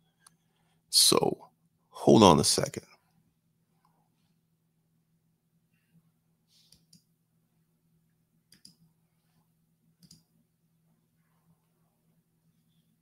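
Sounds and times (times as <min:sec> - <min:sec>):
faint low electrical hum: 0:00.0 - 0:13.0
computer mouse clicks: 0:06.7 - 0:07.1, 0:08.5 - 0:08.9, 0:10.0 - 0:10.3.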